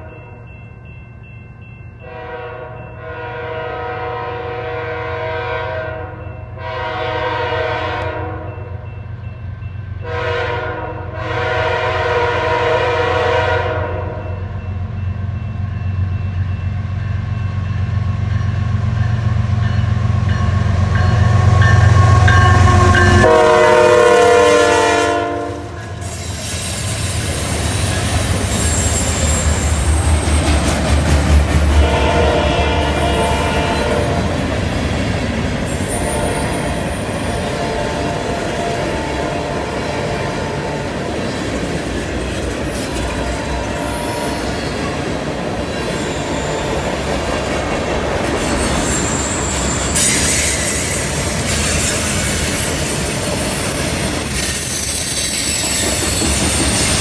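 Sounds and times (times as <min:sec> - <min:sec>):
locomotive air horn: 0:02.0 - 0:08.8, 0:10.0 - 0:14.4, 0:21.3 - 0:26.2, 0:31.7 - 0:34.4, 0:35.8 - 0:40.9, 0:43.1 - 0:44.6.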